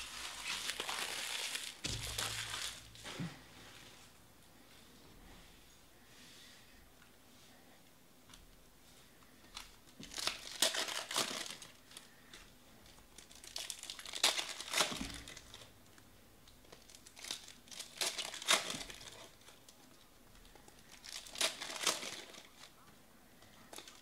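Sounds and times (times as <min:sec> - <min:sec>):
foil wrapper crinkling and tearing: 0:00.0 - 0:03.1, 0:09.5 - 0:12.4, 0:13.0 - 0:15.7, 0:16.5 - 0:19.8, 0:20.4 - 0:22.8, 0:23.6 - 0:24.0.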